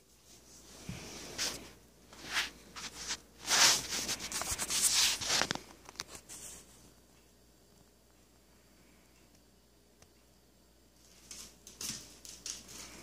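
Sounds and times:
rustling and rubbing: 0.0 - 6.9.

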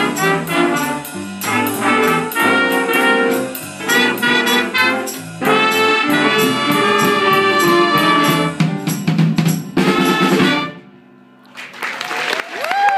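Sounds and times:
jazz band playing: 0.0 - 11.1
applause: 11.5 - 12.9.

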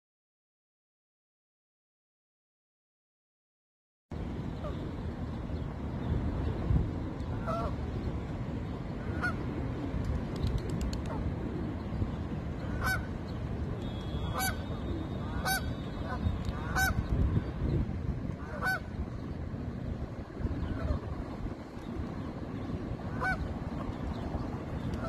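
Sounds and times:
steady low rumble: 4.1 - 25.0
geese honking: 7.4 - 7.7, 12.7 - 13.1, 14.0 - 17.0, 18.4 - 18.9, 23.1 - 23.4.

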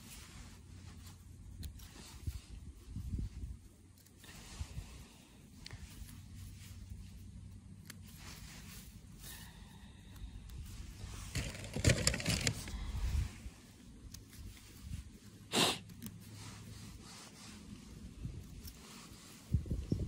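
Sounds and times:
mushrooms rustling: 1.0 - 15.4.

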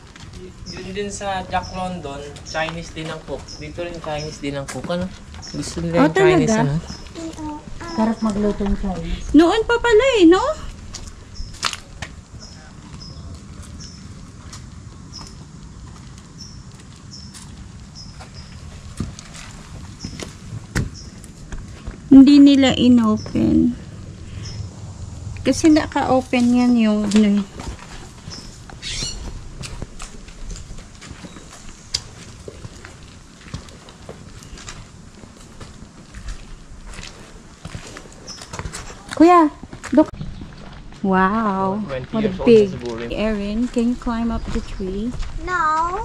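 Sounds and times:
footsteps on brick path: 0.0 - 24.6, 25.4 - 46.0
steady low rumble: 0.0 - 46.0
small bird chirping: 0.4 - 4.6, 5.3 - 8.6, 12.4 - 14.1, 15.1 - 15.4, 22.6 - 24.7, 28.2 - 29.4.

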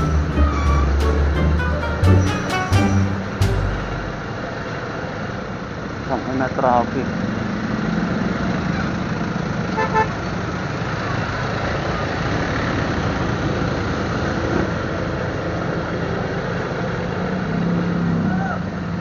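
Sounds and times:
wind: 0.0 - 19.0
vehicle horn beep: 9.8 - 10.1.

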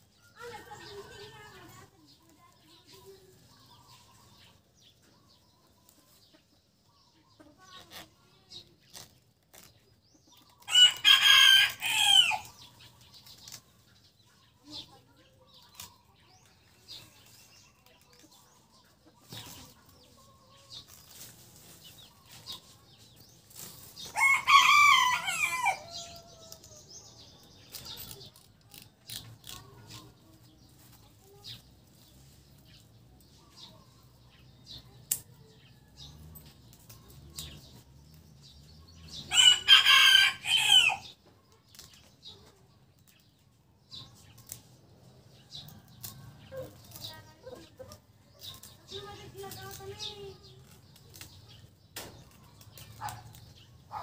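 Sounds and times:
rooster crowing: 39.3 - 41.0.

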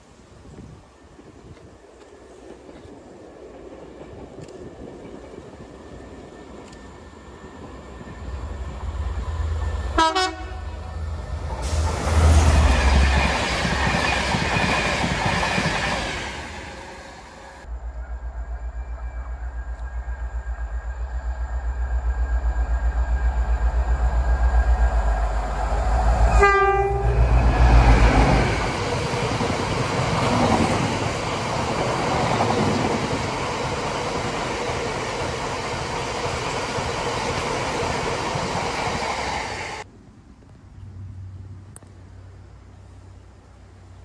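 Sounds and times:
train wheels on rails: 0.0 - 39.9
train horn blast: 9.9 - 11.0, 26.3 - 27.5.

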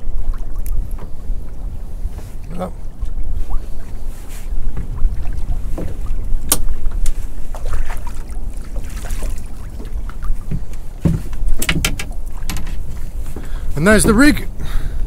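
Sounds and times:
wind rumbling on microphone: 0.0 - 15.0
fishing tackle clicks and knocks: 5.8 - 7.2, 10.5 - 14.2.

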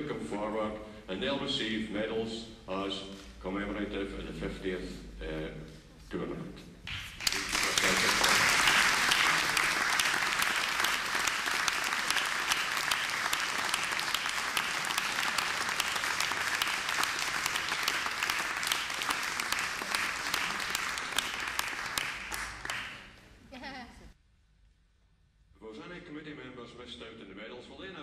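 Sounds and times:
audience applauding: 6.9 - 23.3.

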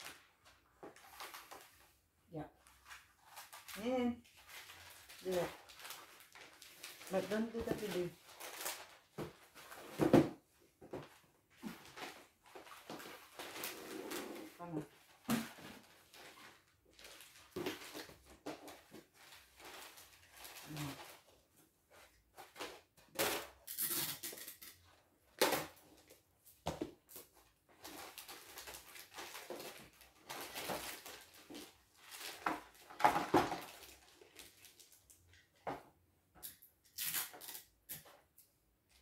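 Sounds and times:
wrapping paper rustling and tearing: 0.0 - 2.0, 2.6 - 10.0, 11.6 - 26.1, 27.1 - 35.3.

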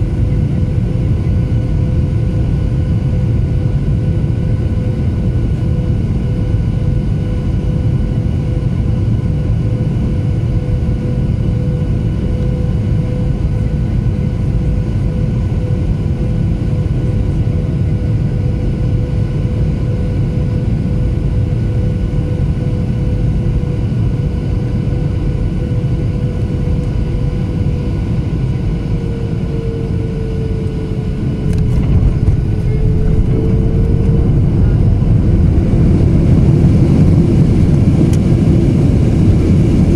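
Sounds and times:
aircraft cabin engine roar: 0.0 - 39.9
engine whine: 0.0 - 39.9
wheels rumbling on runway: 30.6 - 39.9.

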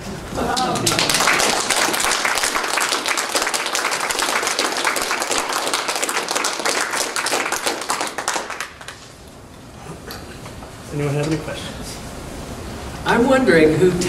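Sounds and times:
audience applauding: 0.4 - 9.2.

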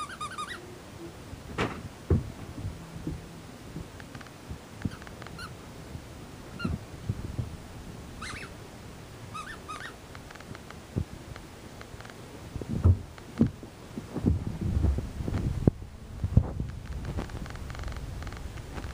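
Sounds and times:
puppy whining and yipping: 0.0 - 0.7, 8.2 - 8.5, 9.4 - 10.0
dull thumps: 1.5 - 4.0, 12.6 - 18.0.

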